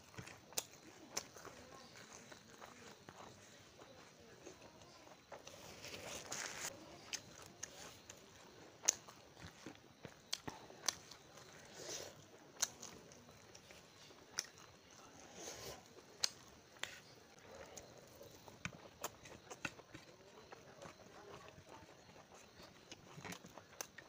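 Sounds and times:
person chewing: 0:00.0 - 0:24.0.

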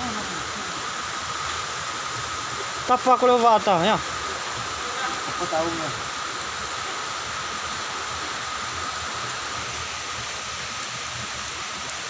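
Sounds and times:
rushing water hiss: 0:00.0 - 0:12.0.

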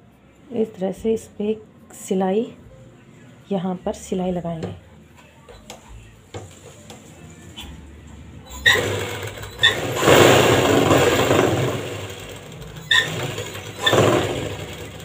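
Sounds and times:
sewing machine stitching: 0:08.5 - 0:15.0
sewing machine start clicks: 0:08.7 - 0:15.0.

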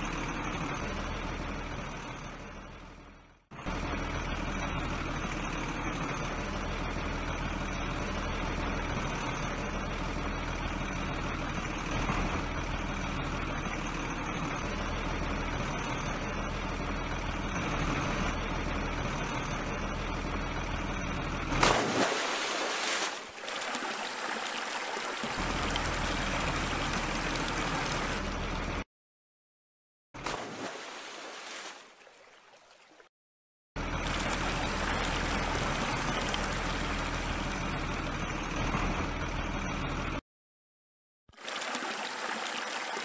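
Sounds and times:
truck engine running: 0:00.0 - 0:22.0, 0:23.2 - 0:28.9, 0:33.8 - 0:40.2.

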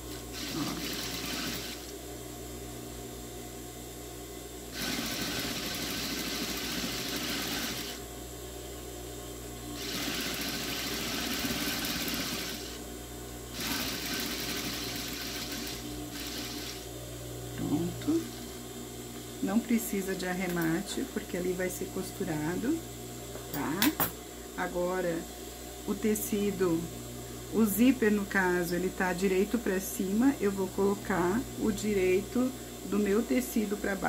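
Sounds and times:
steady low hum: 0:00.0 - 0:04.8, 0:07.8 - 0:34.0
sewing machine stitching: 0:00.4 - 0:01.9, 0:04.8 - 0:08.0, 0:09.8 - 0:12.8, 0:13.6 - 0:16.8.

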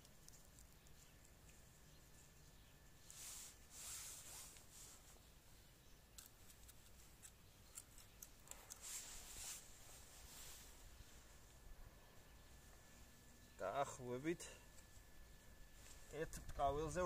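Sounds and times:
soft sweeps: 0:03.0 - 0:05.2, 0:08.8 - 0:11.6
soil scraping and rustling: 0:03.0 - 0:05.3, 0:08.6 - 0:11.4.

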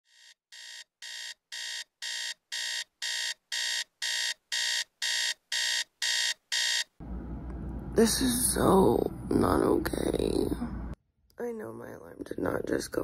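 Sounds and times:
electronic alarm beeping: 0:00.1 - 0:06.9.

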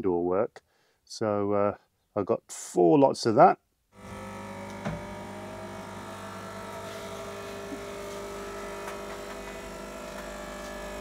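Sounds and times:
coffee machine pump buzzing: 0:04.0 - 0:11.0.

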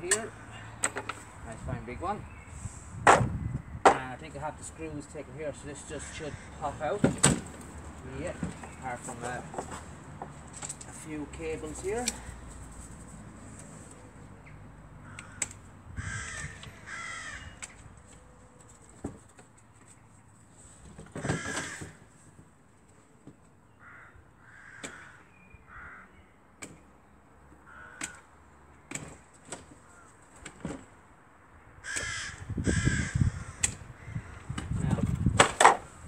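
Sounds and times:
crows cawing: 0:05.9 - 0:07.0, 0:15.0 - 0:17.8, 0:21.2 - 0:22.2, 0:23.7 - 0:26.3, 0:27.6 - 0:28.5, 0:29.8 - 0:30.3, 0:31.8 - 0:34.6.

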